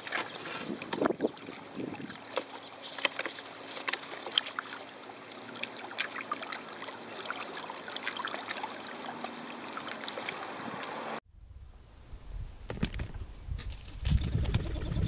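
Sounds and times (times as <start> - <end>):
waves lapping against rocks: 0.0 - 11.1.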